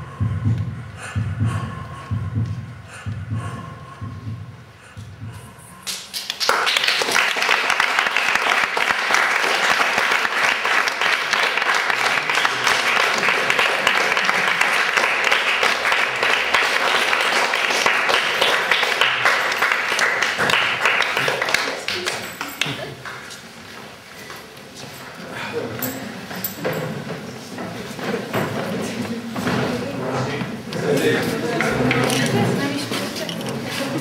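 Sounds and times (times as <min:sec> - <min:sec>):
audience applauding: 0:05.9 - 0:23.3.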